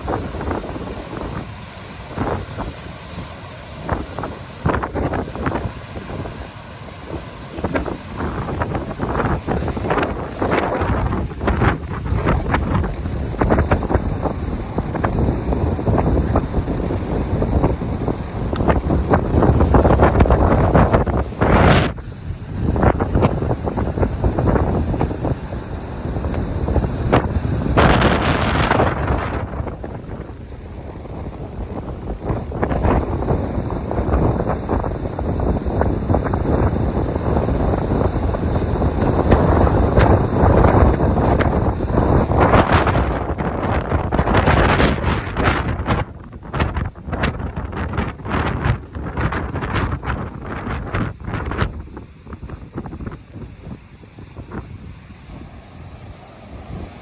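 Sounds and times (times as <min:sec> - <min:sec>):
surf washing up beach: 0:00.0 - 0:57.0
wind buffeting microphone: 0:00.0 - 0:57.0.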